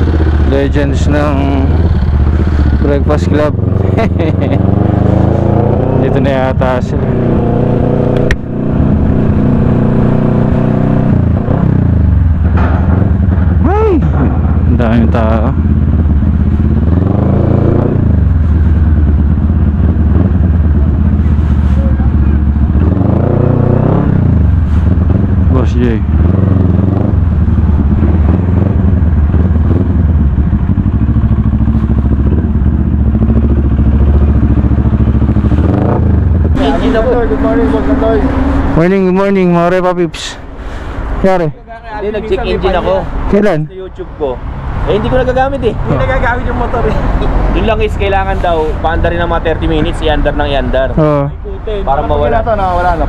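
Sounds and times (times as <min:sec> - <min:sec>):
motorcycle engine idling: 0:00.0 - 0:04.6, 0:11.8 - 0:16.8, 0:18.1 - 0:23.5, 0:24.3 - 0:38.6.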